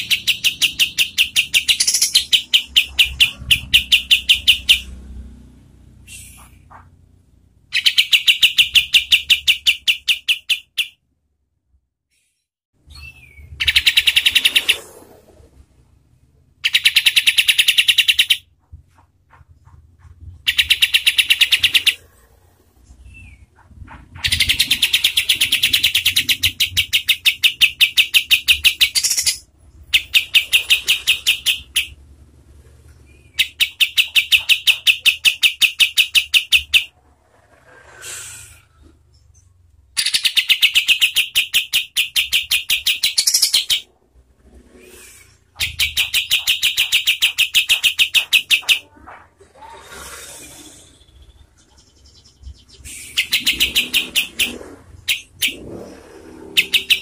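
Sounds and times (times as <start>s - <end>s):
bird call rapid sharp notes: 0.0s - 4.9s, 33.3s - 36.9s, 40.0s - 43.9s, 45.6s - 48.9s, 52.8s - 55.7s.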